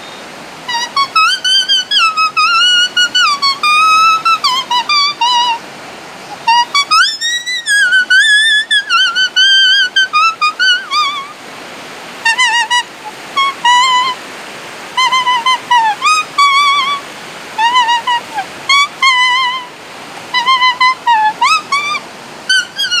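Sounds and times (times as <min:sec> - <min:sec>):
leaf whistle melody: 0:00.0 - 0:05.6, 0:06.2 - 0:11.4, 0:12.2 - 0:14.2, 0:15.0 - 0:17.0, 0:17.6 - 0:19.7, 0:20.3 - 0:23.0
fast river rushing: 0:00.0 - 0:23.0.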